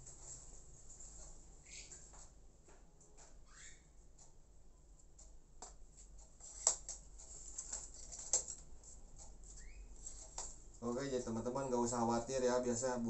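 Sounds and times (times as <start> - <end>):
soft taps and clicks: 5.0 - 7.0.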